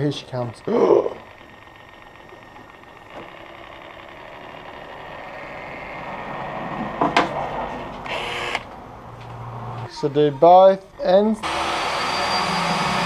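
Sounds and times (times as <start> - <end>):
caulking gun motor running: 0.0 - 6.1, 8.0 - 8.8.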